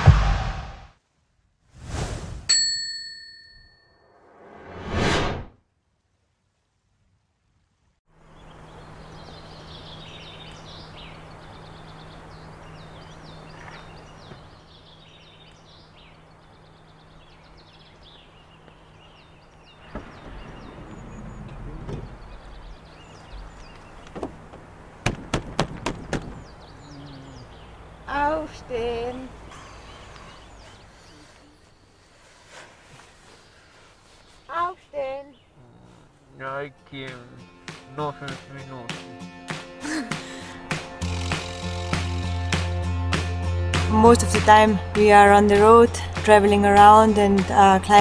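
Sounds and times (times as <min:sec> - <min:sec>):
birds chirping: 0:08.2 - 0:48.0
sharp knocks: 0:24.1 - 0:26.4.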